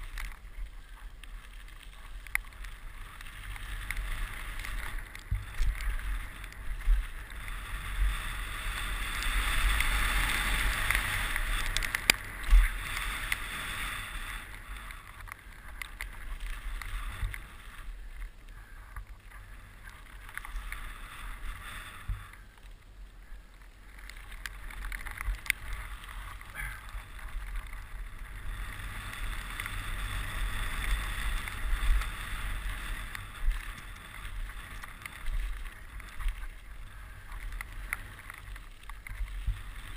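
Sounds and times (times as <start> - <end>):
tyres rolling on dirt: 0.0 - 22.8, 23.6 - 39.9
wind rushing over camera: 0.0 - 39.9.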